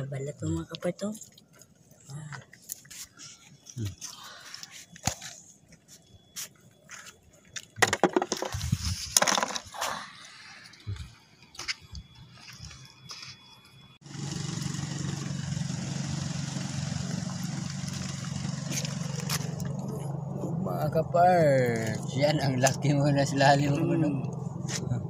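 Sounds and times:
motor drone: 11.9s - 25.0s.

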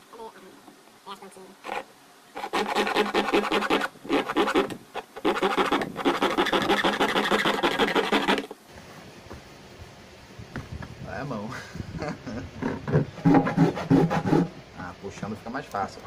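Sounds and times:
hand saw rasping through plastic: 1.6s - 1.8s, 2.4s - 8.5s, 12.9s - 14.5s.

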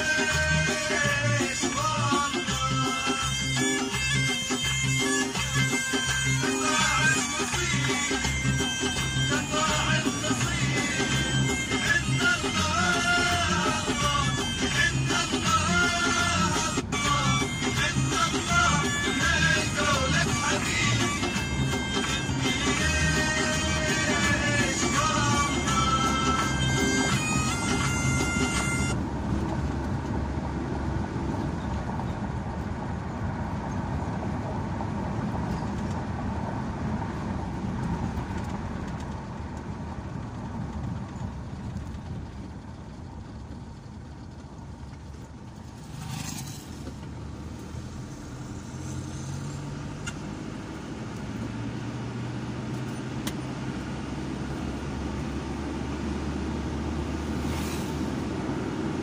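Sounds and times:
car engine and tyre noise: 0.0s - 59.0s
brief rush of noise: 57.4s - 58.3s.

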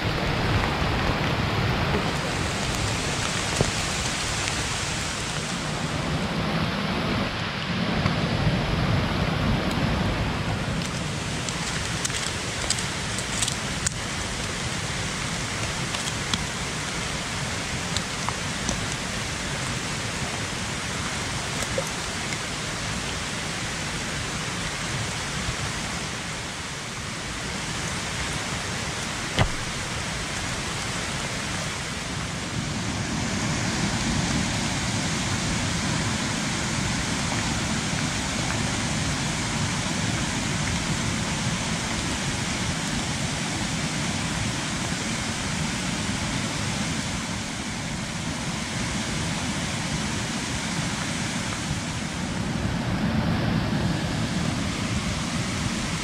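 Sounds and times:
heavy rain hissing: 0.0s - 56.0s
raindrop ticks: 10.8s - 17.1s, 17.8s - 19.1s
sharp tap: 29.4s - 29.7s.

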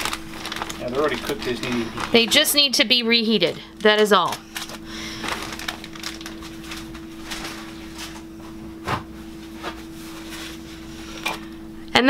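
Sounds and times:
foil crinkling: 0.0s - 8.3s.

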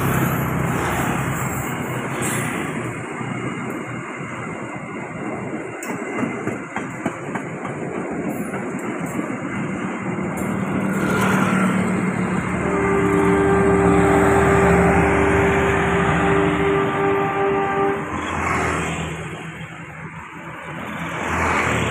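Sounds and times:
rail joint clicks: 0.0s - 15.5s
train wheels rumbling on rails: 0.0s - 21.9s.

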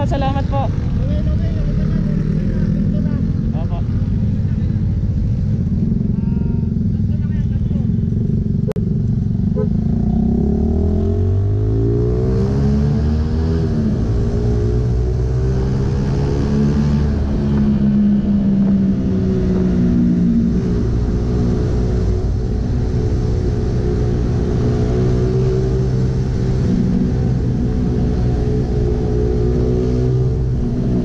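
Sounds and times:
motorcycle engine running: 0.0s - 10.6s
wind and road noise: 0.0s - 31.0s.

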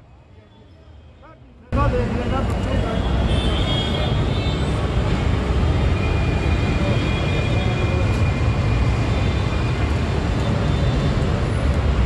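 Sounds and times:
street traffic rumble: 0.0s - 12.0s.

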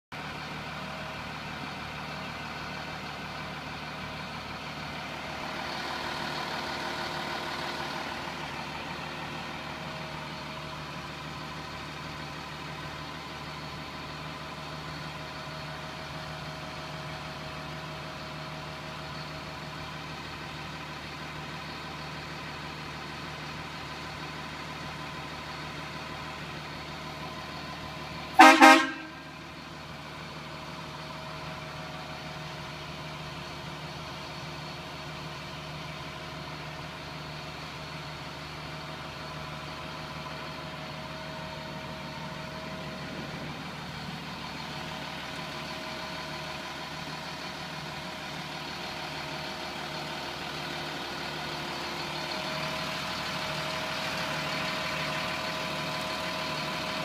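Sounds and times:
diesel engine idling: 0.1s - 57.0s
truck horn toot: 28.3s - 29.4s.

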